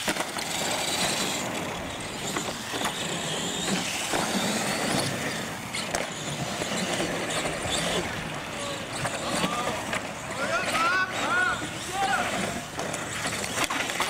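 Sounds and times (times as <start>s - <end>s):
model vehicle motor whirring: 0.0s - 14.0s.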